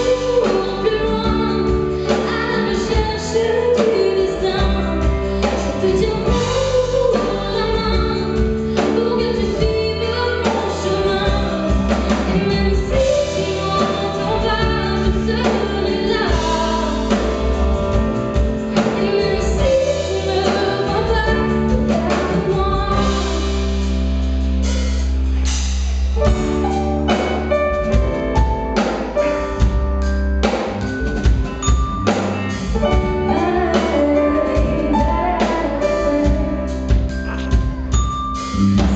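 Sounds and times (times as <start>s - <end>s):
woman singing into microphone: 0.0s - 17.5s, 18.7s - 23.6s, 32.8s - 37.0s
band playing: 0.0s - 38.9s.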